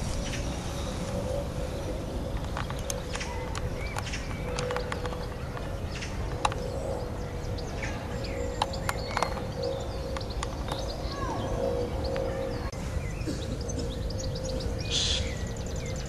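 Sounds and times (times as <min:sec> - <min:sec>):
birds chirping: 0:00.0 - 0:16.0
wind rumble on microphone: 0:00.0 - 0:16.0.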